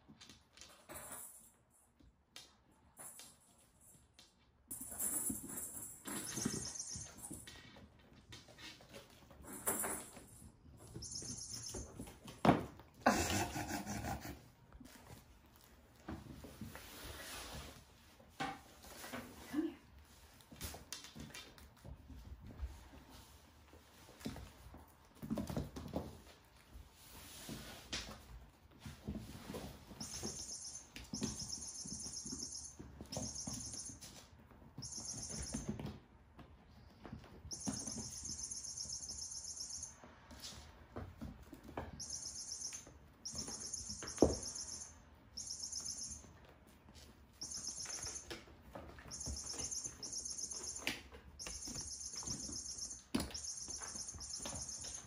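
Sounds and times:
kittens chirping trills: 10.8 - 12.2, 30.0 - 34.2, 34.8 - 35.8, 37.5 - 40.0, 41.9 - 46.4, 47.4 - 48.4, 49.0 - 55.0.

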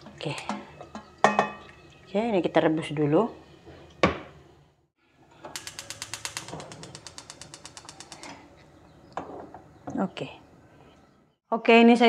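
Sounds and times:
gas hob igniter clicking rapidly: 5.5 - 8.4.

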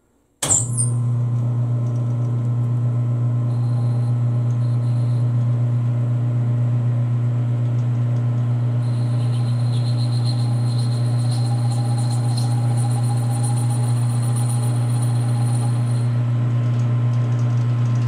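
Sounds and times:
faint high whine: 3.4 - 5.4, 8.8 - 16.2
metal lathe humming: 8.8 - 16.2.

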